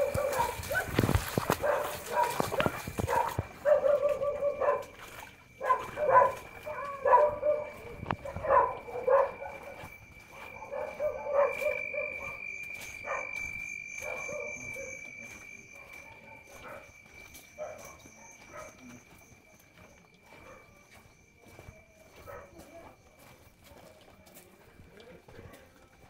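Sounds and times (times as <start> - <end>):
dog barking: 0.0 - 13.4, 14.0 - 15.0, 15.7 - 17.0, 17.6 - 19.0, 20.3 - 20.8, 22.2 - 22.8.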